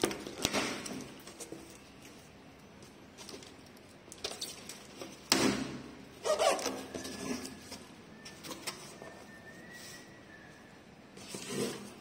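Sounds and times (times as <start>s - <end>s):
loud scraping rustle: 11.2s - 12.0s.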